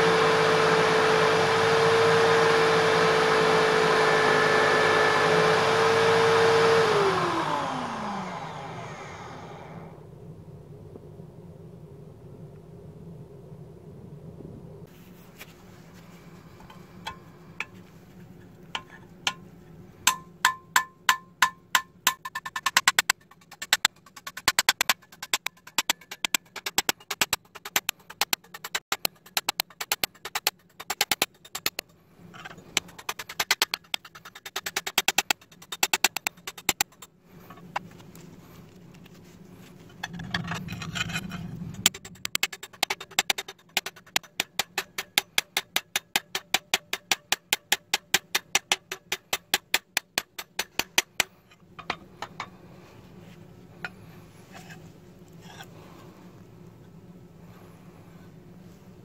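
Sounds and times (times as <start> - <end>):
short rushing scrape: 22.8 - 37.8.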